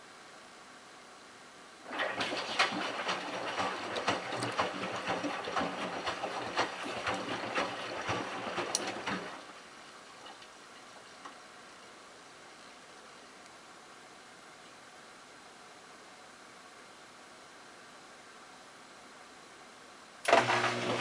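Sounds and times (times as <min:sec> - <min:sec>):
washing machine motor humming: 0:01.9 - 0:09.5, 0:20.3 - 0:21.0
water sloshing: 0:01.9 - 0:11.2.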